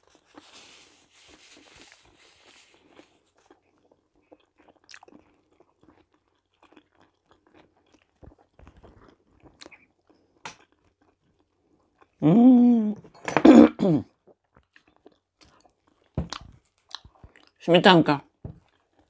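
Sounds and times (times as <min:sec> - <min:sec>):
person chewing: 0:00.0 - 0:12.4, 0:13.1 - 0:17.6, 0:18.4 - 0:19.0
mouth clicks and smacks: 0:16.2 - 0:17.6.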